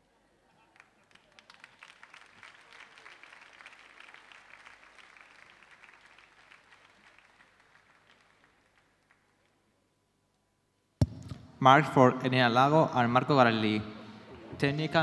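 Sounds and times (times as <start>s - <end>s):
faint audience applause: 0.5s - 9.6s.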